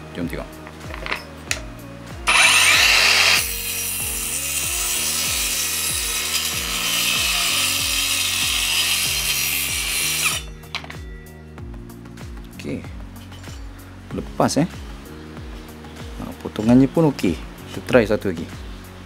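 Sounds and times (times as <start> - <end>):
circular saw cutting wood: 2.3 - 10.5.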